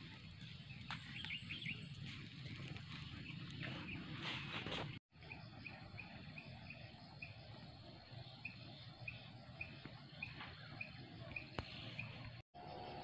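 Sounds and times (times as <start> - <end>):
faint high insect hum: 5.2 - 13.0.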